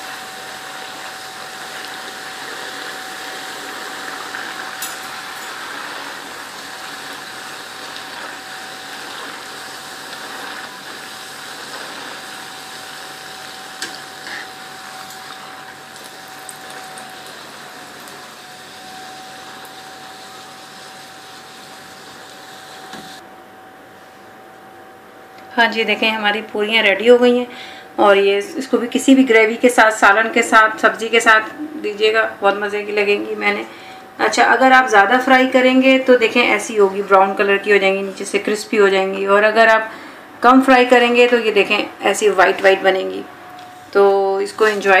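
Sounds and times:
deep-frying sizzle: 0.0s - 23.2s.

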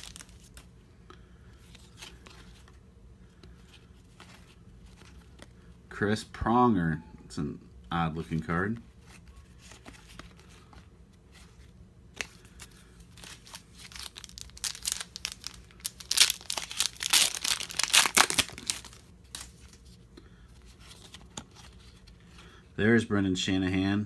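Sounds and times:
foil wrapper tearing and crinkling: 0.0s - 0.6s, 13.1s - 19.6s.

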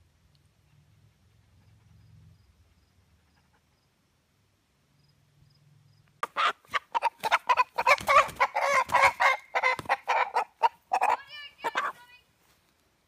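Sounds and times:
rooster squawking and clucking: 6.2s - 12.0s
wings flapping: 6.7s - 10.2s.

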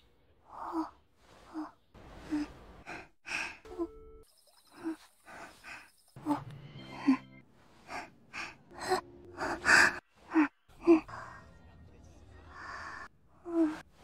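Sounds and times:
faint background music: 6.2s - 14.0s.

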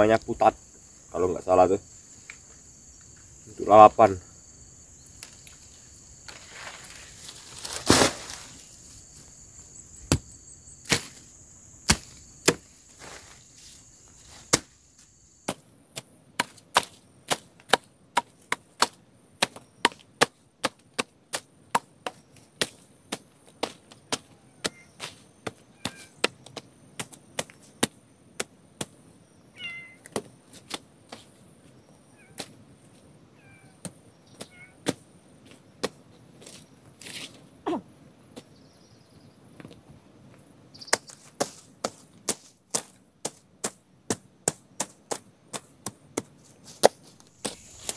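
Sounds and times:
high insect drone: 0.0s - 17.2s, 47.0s - 47.9s
machete hacking weeds: 7.3s - 8.6s, 10.8s - 11.2s, 11.8s - 13.3s, 14.3s - 14.8s, 16.4s - 25.1s, 40.9s - 47.9s.

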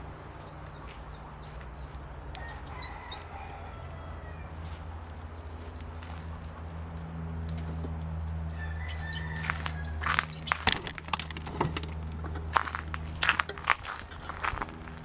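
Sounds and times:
bird chirping: 0.0s - 3.5s, 8.4s - 10.7s
steady low hum: 0.0s - 15.0s.

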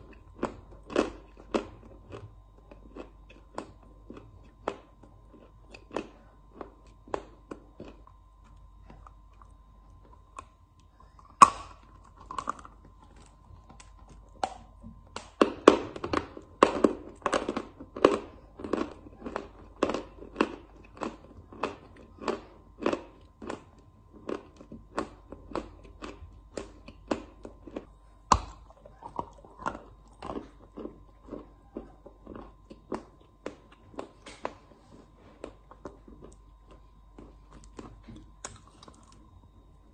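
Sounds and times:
chalk being crunched and chewed: 28.5s - 39.3s.

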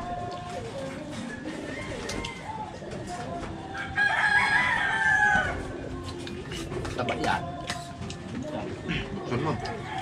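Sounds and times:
rooster crowing: 1.3s - 2.8s, 3.8s - 5.8s.

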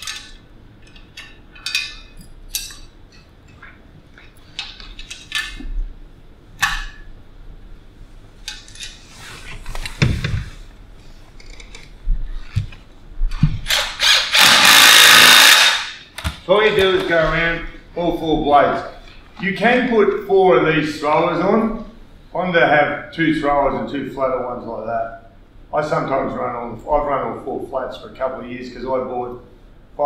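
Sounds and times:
metal parts clinking: 0.0s - 3.2s
power driver bursts: 13.7s - 16.1s.

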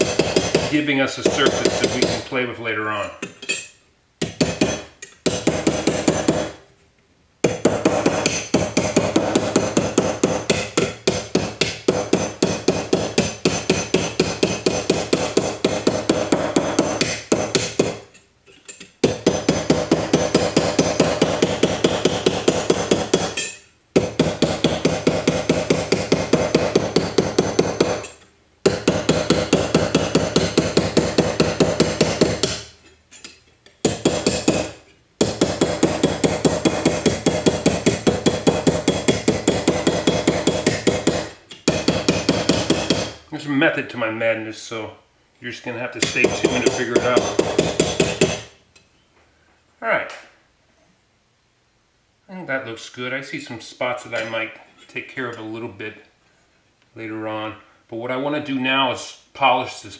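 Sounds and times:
hammer striking metal: 0.0s - 2.3s, 3.3s - 6.6s, 7.4s - 18.1s, 19.0s - 32.7s, 33.8s - 43.2s, 46.0s - 48.5s.

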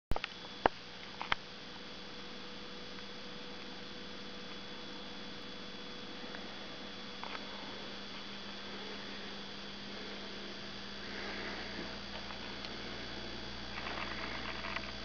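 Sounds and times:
faint high-pitched whine: 0.1s - 15.0s
low hum: 0.1s - 15.0s.

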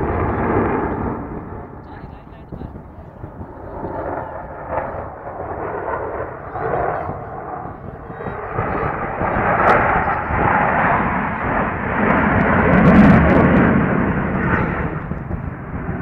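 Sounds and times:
fighter jet engine roar: 0.0s - 16.0s.

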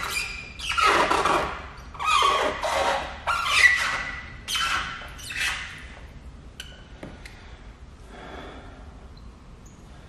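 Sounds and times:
squeegee squeaking on wet film: 0.0s - 5.9s.

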